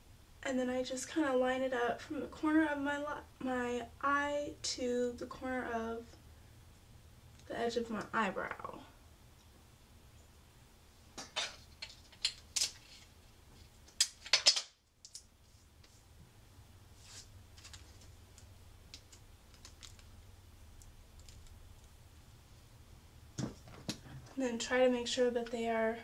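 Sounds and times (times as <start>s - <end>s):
tape being pulled and torn: 11.2s - 13.1s, 13.8s - 16.0s.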